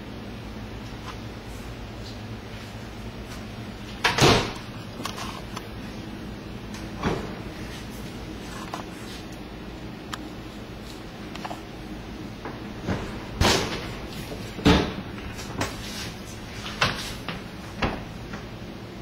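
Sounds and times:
oven door clunks and knocks: 0:04.0 - 0:04.6, 0:07.0 - 0:07.5, 0:12.4 - 0:15.2, 0:17.8 - 0:18.1.

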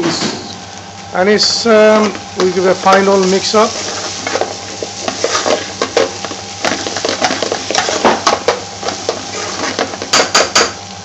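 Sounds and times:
potatoes sizzling in frying pan: 0:01.4 - 0:11.0
metal utensil scraping pan: 0:03.6 - 0:10.4.

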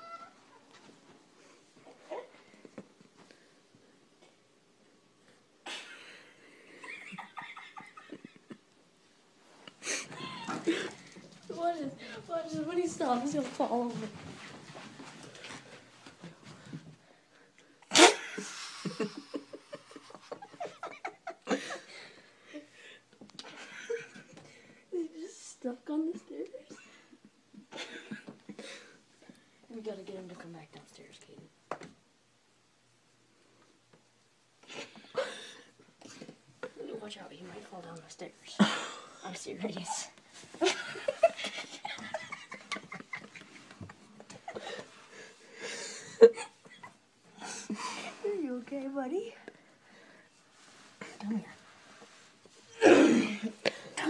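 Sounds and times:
people laughing hard: 0:40.6 - 0:45.0.

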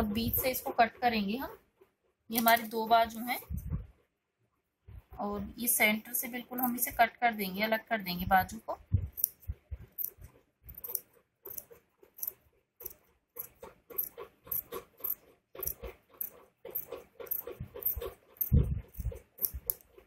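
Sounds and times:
scissors snipping cloth: 0:02.3 - 0:03.3, 0:09.0 - 0:20.0.

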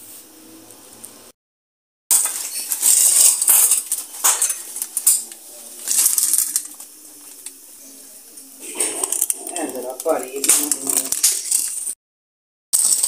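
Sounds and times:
paper wrapping crinkling: 0:02.1 - 0:12.0, 0:12.8 - 0:13.0.

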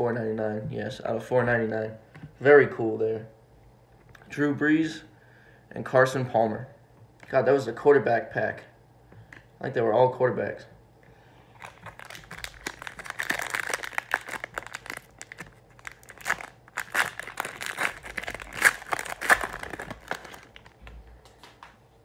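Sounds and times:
wrapper being torn and crinkled: 0:11.5 - 0:20.8.

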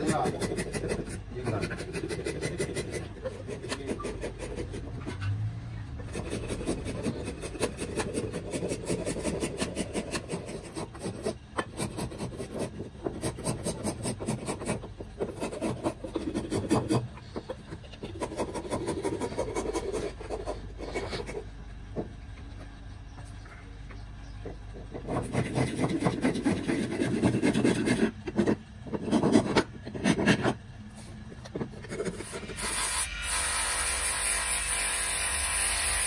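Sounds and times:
hand file rasping on wood: 0:00.0 - 0:05.2, 0:06.0 - 0:21.4, 0:24.9 - 0:30.6.

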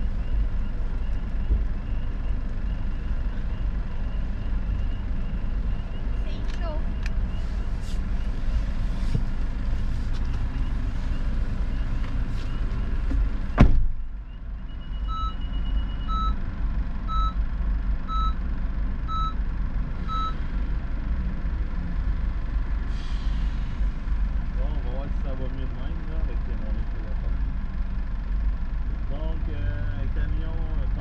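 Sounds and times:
truck reversing alarm beeps: 0:00.0 - 0:06.3, 0:10.5 - 0:16.4, 0:17.0 - 0:17.4, 0:18.0 - 0:20.4
low vehicle rumble: 0:00.0 - 0:31.0.

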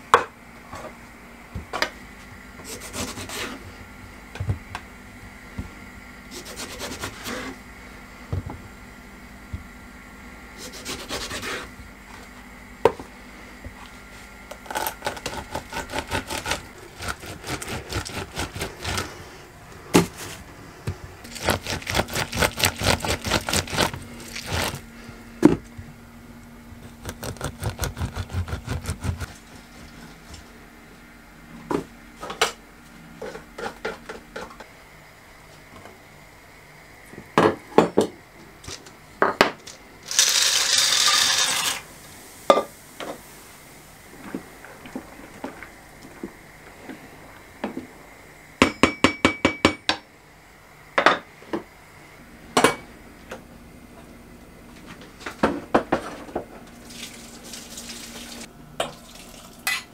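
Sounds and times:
citrus reamer rasping: 0:14.6 - 0:19.4, 0:21.2 - 0:24.8, 0:26.8 - 0:29.4.

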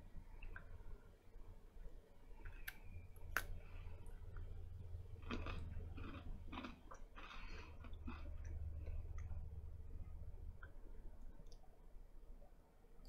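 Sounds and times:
crunchy chewing: 0:02.4 - 0:09.5.

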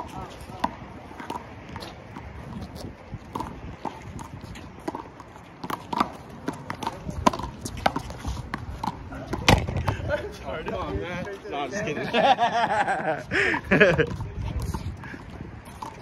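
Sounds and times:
rubber ball smacking concrete: 0:04.9 - 0:10.0.

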